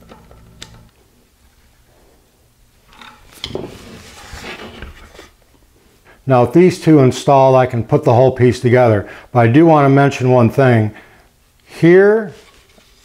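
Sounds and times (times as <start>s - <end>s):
rubbing and handling noise: 0.0s - 6.0s, 12.1s - 13.0s.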